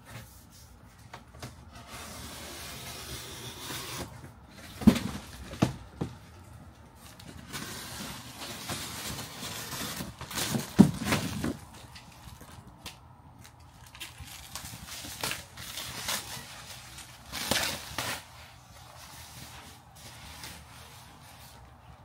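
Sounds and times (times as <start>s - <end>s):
cardboard and plastic rustling: 0.0s - 22.0s.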